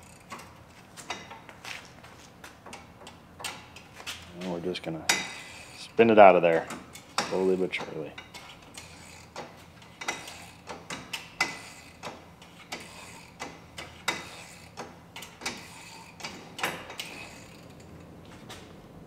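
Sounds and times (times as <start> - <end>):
ratchet wrench clicking: 8.3 - 17.9.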